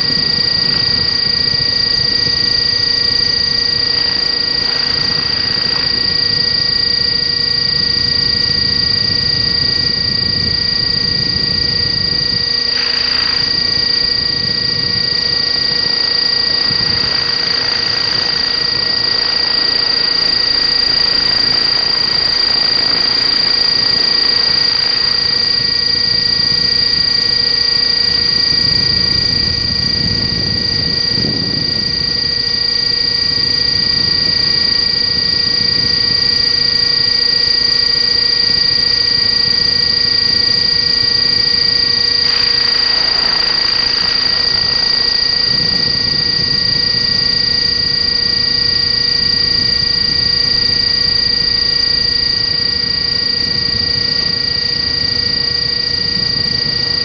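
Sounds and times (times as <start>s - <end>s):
rc helicopter motor and gears whine: 0.0s - 57.0s
low rumbling: 41.9s - 47.7s.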